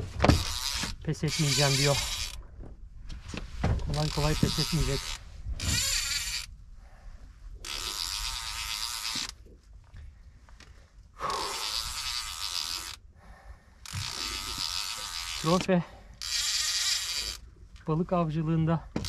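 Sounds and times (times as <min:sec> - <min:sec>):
fishing reel running: 0:00.3 - 0:02.4, 0:03.9 - 0:06.5, 0:07.6 - 0:09.4, 0:11.2 - 0:13.0, 0:13.8 - 0:17.5.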